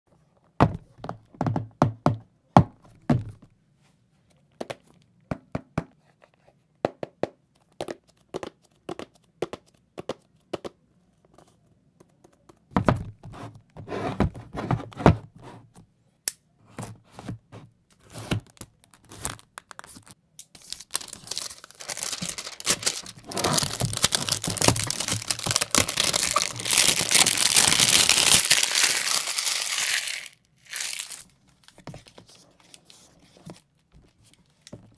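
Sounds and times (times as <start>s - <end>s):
plastic wrapping crinkling and tearing: 18.4s - 31.3s
hands handling cardboard box: 20.9s - 30.2s.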